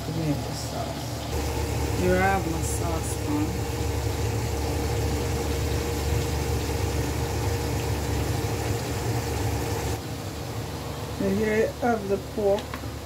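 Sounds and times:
low rumbling hum: 1.2s - 10.0s.

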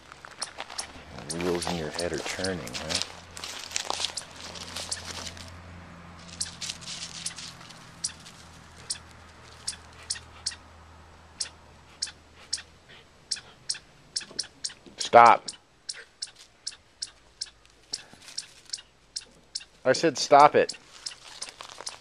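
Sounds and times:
crunches in dry leaves: 0.0s - 5.6s, 6.2s - 10.2s, 17.8s - 18.9s, 20.7s - 22.0s.

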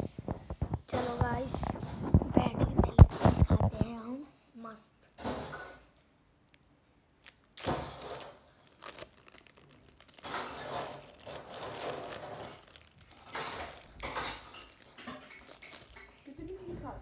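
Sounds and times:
plastic wrapper tearing: 6.4s - 16.7s
plastic wrapper crinkling: 6.4s - 17.0s.

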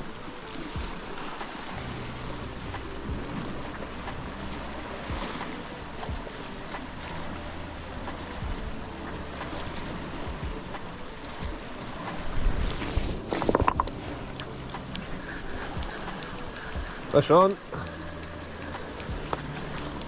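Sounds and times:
sea washing against rocks: 0.0s - 20.0s
wind buffeting microphone: 0.0s - 20.0s
knocks and rustles: 12.8s - 14.2s.

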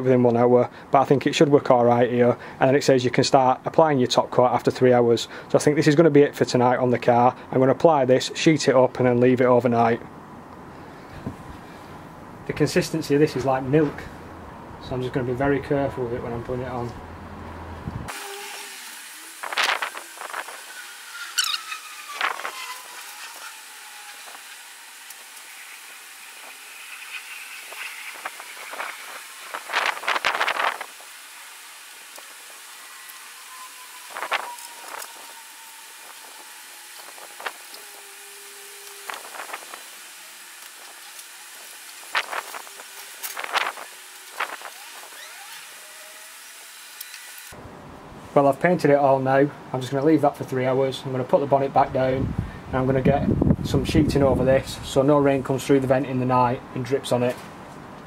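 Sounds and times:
faint steady hiss: 18.0s - 47.5s
paintbrush scrubbing on metal: 18.2s - 45.1s.

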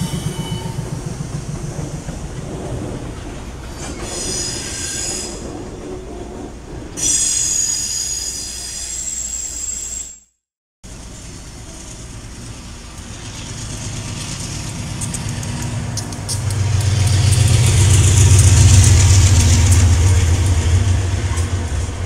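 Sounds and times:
locomotive engine drone: 0.0s - 4.3s, 10.9s - 22.0s
wheels clicking on rails: 0.0s - 7.5s, 10.9s - 22.0s
train wheels rumbling: 0.0s - 10.1s, 10.8s - 22.0s.

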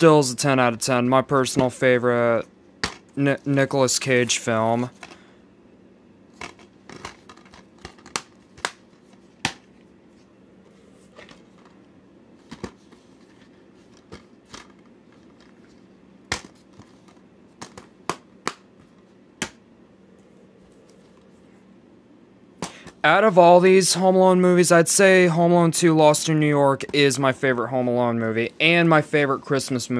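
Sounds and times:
plastic cases clicking and knocking: 6.4s - 8.8s, 16.3s - 18.7s.

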